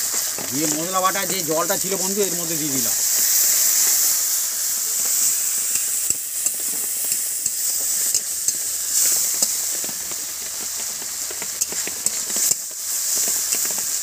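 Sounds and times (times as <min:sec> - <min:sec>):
paste sizzling in hot oil: 0:00.0 - 0:14.0
utensil clicking against pan: 0:10.7 - 0:13.9.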